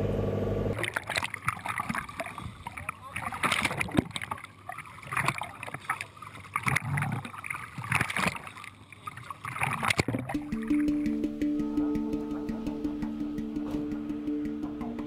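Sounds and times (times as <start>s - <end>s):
water sloshing and splashing: 0.8s - 15.0s
music: 10.4s - 15.0s.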